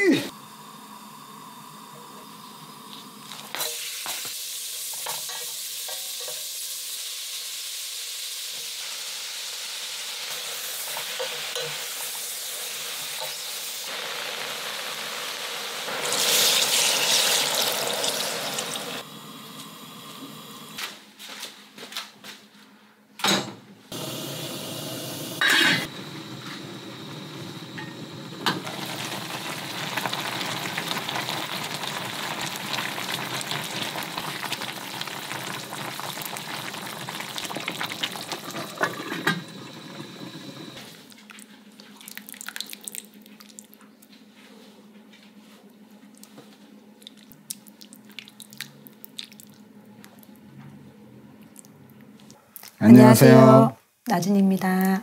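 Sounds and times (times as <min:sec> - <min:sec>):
food sizzling in oil: 0:01.6 - 0:20.8, 0:23.9 - 0:40.9
water poured into hot pot: 0:13.5 - 0:19.0, 0:28.5 - 0:40.8, 0:42.0 - 0:43.6
soup bubbling: 0:25.8 - 0:43.8, 0:47.0 - 0:50.2.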